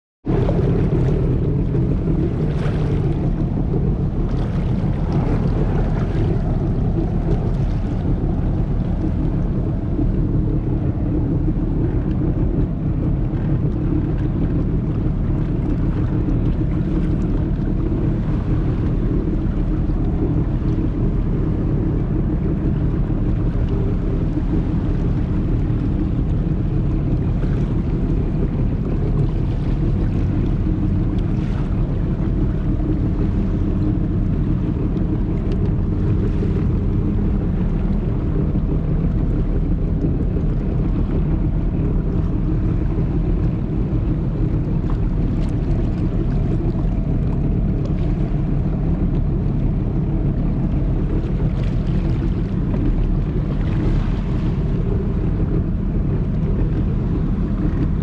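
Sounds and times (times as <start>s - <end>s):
boat engine humming: 0.2s - 58.0s
water noise: 0.2s - 58.0s
wind on microphone: 0.2s - 58.0s.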